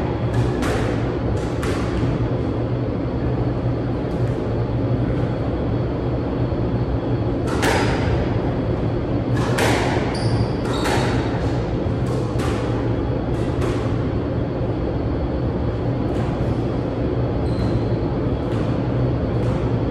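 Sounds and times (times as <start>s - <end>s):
low hum: 0.0s - 19.9s
squash ball smacks: 9.3s - 14.0s.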